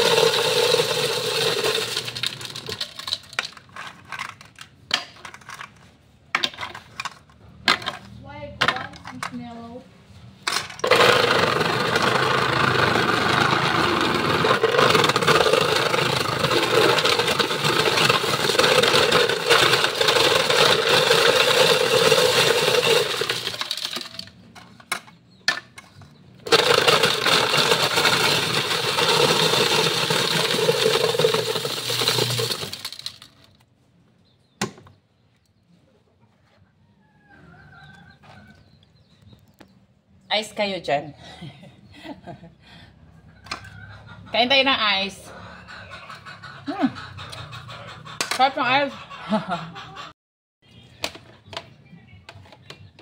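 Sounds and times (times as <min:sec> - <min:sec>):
ice shaver grinding ice: 0:00.0 - 0:03.6, 0:10.8 - 0:24.3, 0:26.5 - 0:33.4.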